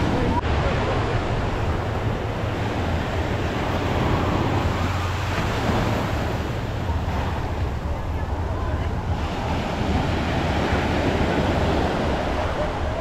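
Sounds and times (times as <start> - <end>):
ocean surf: 0.0 - 13.0
wind rumble on microphone: 0.0 - 13.0.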